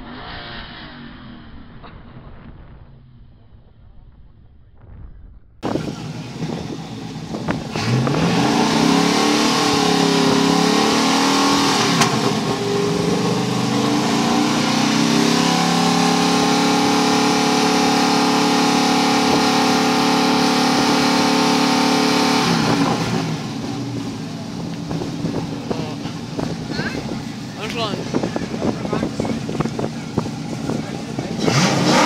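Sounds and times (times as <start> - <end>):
car engine revving: 5.6 - 32.0.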